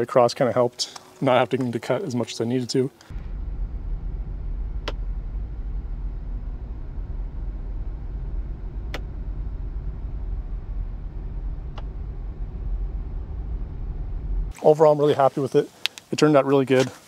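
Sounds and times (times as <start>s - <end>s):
road and engine rumble: 2.9s - 14.6s.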